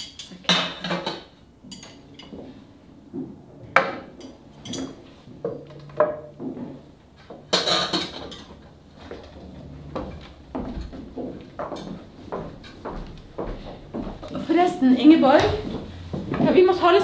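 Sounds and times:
plates and cutlery clinking: 0.0 - 2.6, 4.0 - 6.4, 7.4 - 9.3.

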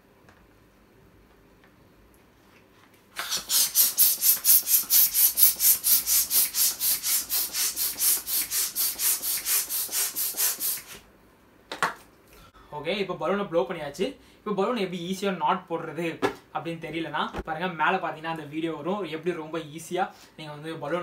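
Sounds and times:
hand balloon pump strokes: 3.2 - 11.0.

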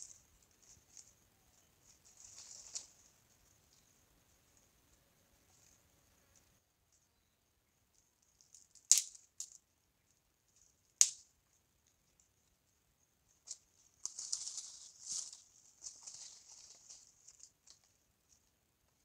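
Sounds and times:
fire crackling: 8.2 - 9.6
twigs snapping: 8.2 - 9.6, 10.6 - 12.0, 13.4 - 17.9.

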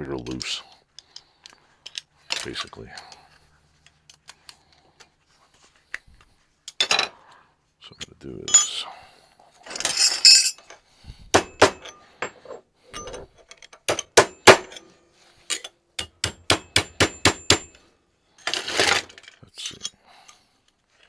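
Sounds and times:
metal pieces scraping: 9.6 - 10.7, 18.4 - 19.9
hammer tapping metal plates: 11.4 - 12.4, 15.5 - 17.8.

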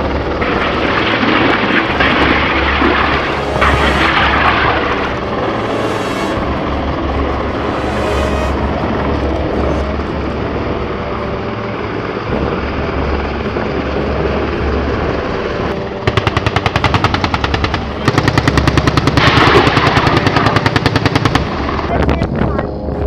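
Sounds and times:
helicopter rotor and engine: 0.0 - 23.0
rapid automatic gunfire: 16.0 - 21.9.

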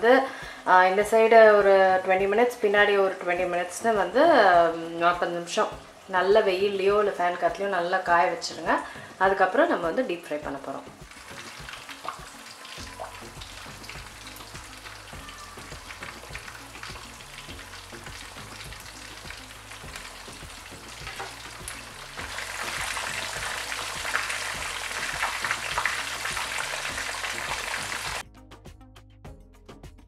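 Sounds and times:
fish sizzling in hot oil: 11.0 - 28.2.

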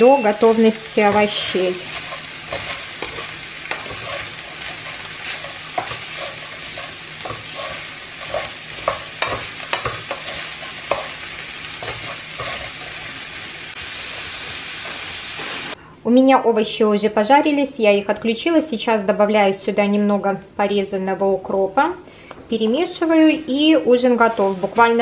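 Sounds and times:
food sizzling in frying pan: 0.0 - 15.8
spatula scraping and knocking pan: 0.4 - 13.2.

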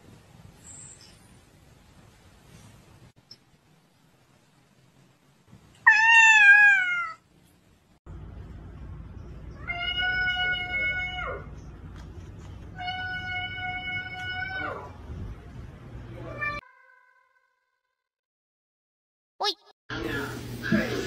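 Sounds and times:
cat meowing: 5.8 - 7.2.

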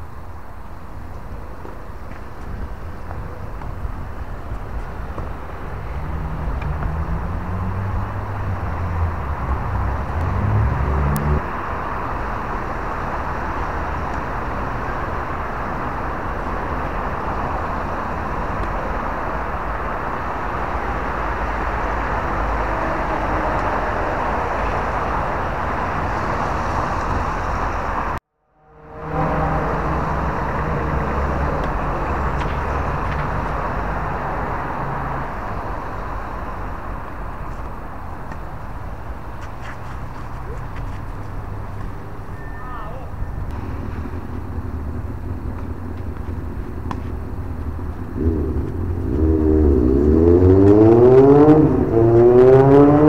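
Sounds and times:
road traffic noise: 0.0 - 53.0
vehicle engine rising in pitch: 5.6 - 18.3, 19.5 - 37.0, 42.0 - 53.0.

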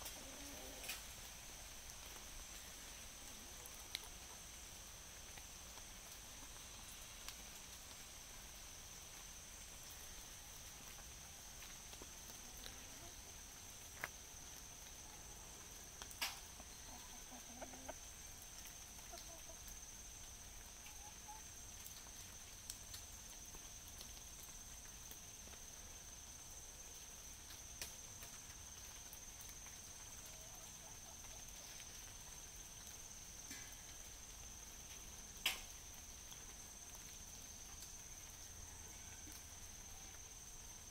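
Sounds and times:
hens clucking softly: 0.0 - 1.0, 16.7 - 19.8, 30.1 - 32.0
faint high-pitched hiss: 0.0 - 40.9.

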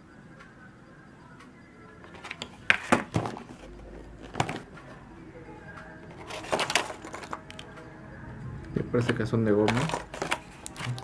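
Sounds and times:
plastic packaging clicks and knocks: 2.1 - 3.5, 4.2 - 4.7, 9.0 - 11.0.

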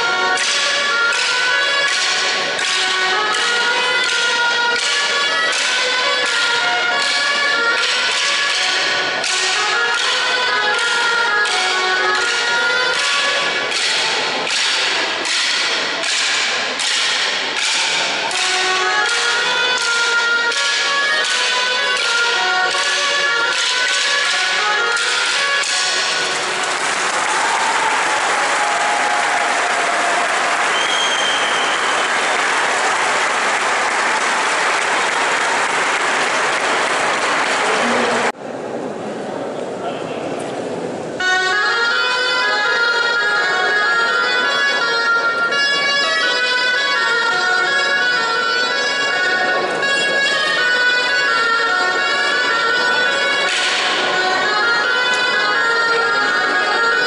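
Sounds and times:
wooden sticks clacking: 0.0 - 38.0, 53.3 - 54.2
audience applauding: 26.3 - 38.3.

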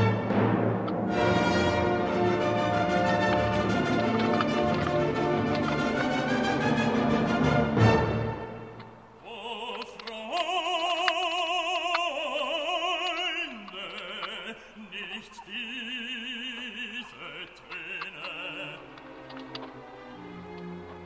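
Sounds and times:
operatic singing voice: 9.2 - 19.7.

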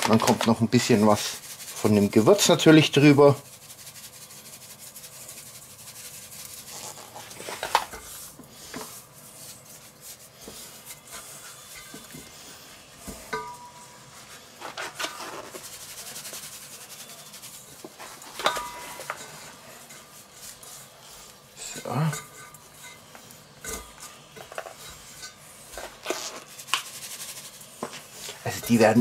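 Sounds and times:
paper bag rustling: 0.0 - 1.3
gloved hands rubbing chicken: 0.0 - 11.8, 14.2 - 18.2, 25.6 - 29.0.

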